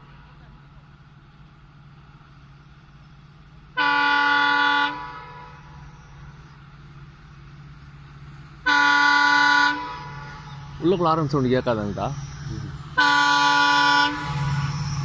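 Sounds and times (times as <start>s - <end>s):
horn blasts: 3.8s - 5.8s, 8.6s - 10.4s, 12.9s - 14.8s
low hum: 9.5s - 15.0s.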